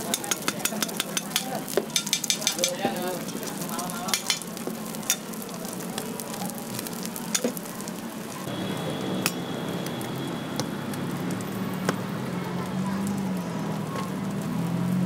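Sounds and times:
food sizzling on a griddle: 0:00.0 - 0:15.0
metal spatula clicking on plate: 0:00.1 - 0:02.8.

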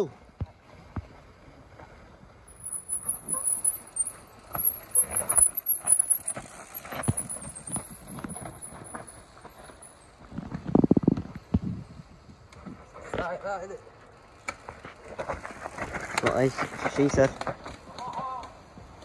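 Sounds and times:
mountain bike clattering on trail: 0:00.4 - 0:19.0.

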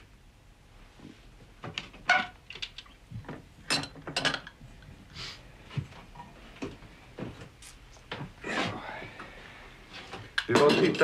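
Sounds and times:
glasses and bottles clinking: 0:03.7 - 0:04.6, 0:10.4 - 0:11.0.

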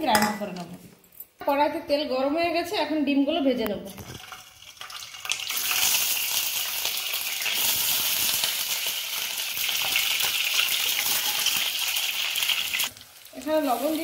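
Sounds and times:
eggs frying in sizzling oil: 0:03.9 - 0:14.0.

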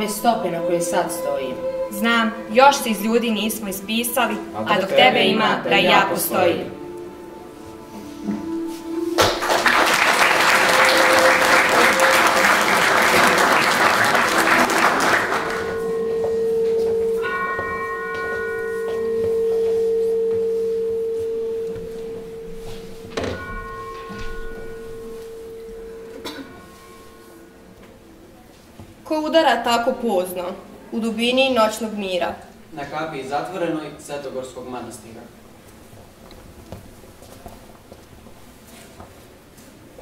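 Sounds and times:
church bell tolling: 0:00.0 - 0:28.2
audience applauding: 0:09.2 - 0:16.2.

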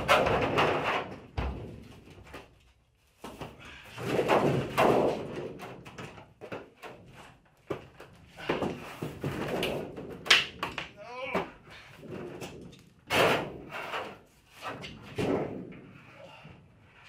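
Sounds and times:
wooden panel scraping and flexing: 0:00.0 - 0:02.6, 0:11.9 - 0:16.0.

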